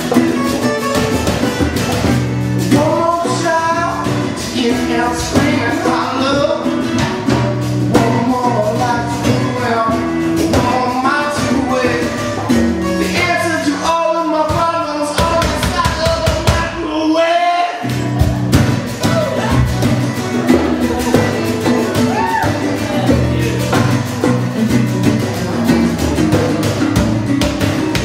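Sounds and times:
box drum with stick and brush: 0.0 - 13.5, 17.9 - 28.0
strummed acoustic guitar: 0.0 - 28.0
person singing: 2.6 - 24.5.

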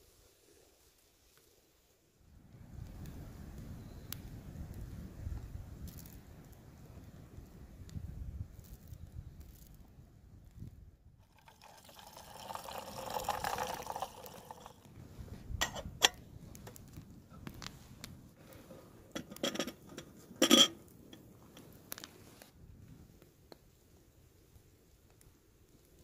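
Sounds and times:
water pouring into a kettle: 11.2 - 14.8
kettle lid clanking: 19.2 - 20.8.

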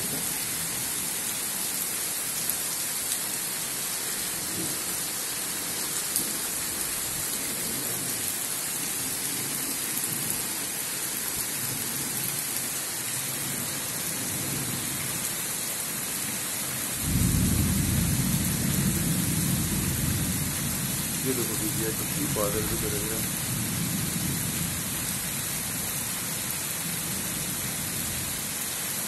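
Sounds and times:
heavy rain pouring: 0.0 - 29.0
loud raindrops: 0.0 - 29.0
distant thunder rumble: 17.0 - 22.8.

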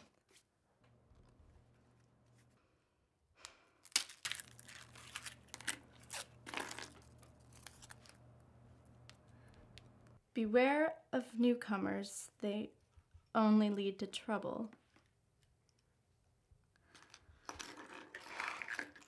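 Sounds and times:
fortune cookie cracking: 3.4 - 10.2
paper rustling: 4.4 - 8.2.

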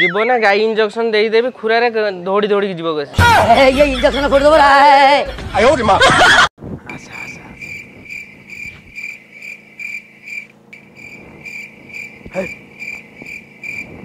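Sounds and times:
cricket chirping: 7.6 - 14.0.

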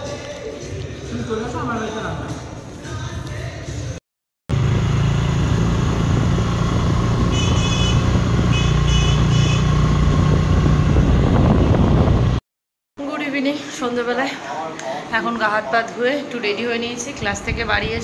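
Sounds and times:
motor scooter engine rumble: 4.5 - 12.4
short high-pitched horn toots: 7.2 - 9.8
wind on microphone: 9.8 - 12.4, 17.2 - 18.0.

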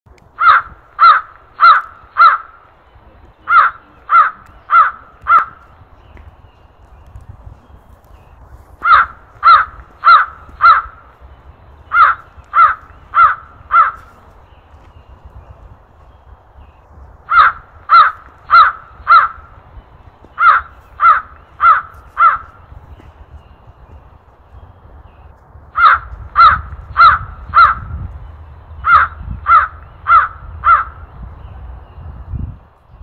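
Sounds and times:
crow cawing: 0.4 - 2.6, 3.4 - 5.7, 8.8 - 11.1, 11.9 - 14.2, 17.3 - 19.6, 20.3 - 22.6, 25.7 - 27.9, 28.8 - 31.0.

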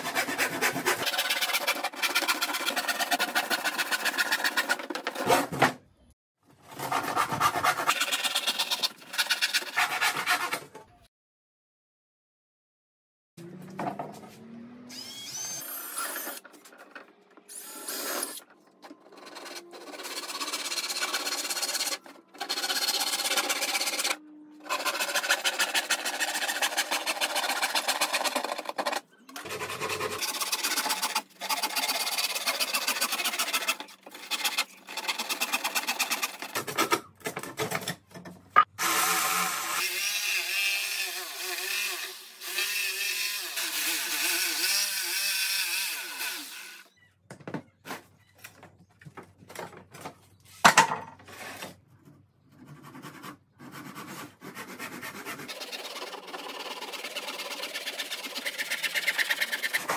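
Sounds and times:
hand saw cutting plywood: 0.0 - 5.6, 6.7 - 10.8, 17.5 - 37.8, 52.6 - 59.9
jigsaw cutting plywood: 19.2 - 36.5, 55.2 - 59.9.

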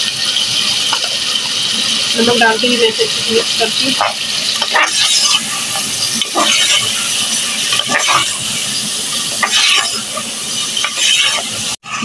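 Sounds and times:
chicken sizzling in hot oil: 0.0 - 12.0
steel spoon scraping a pot: 3.9 - 8.5, 9.2 - 11.8.

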